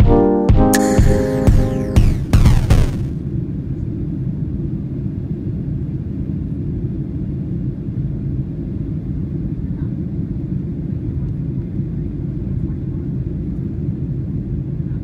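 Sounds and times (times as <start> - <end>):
music with falling sweep: 0.0 - 4.6
airliner cabin rumble: 3.0 - 15.0.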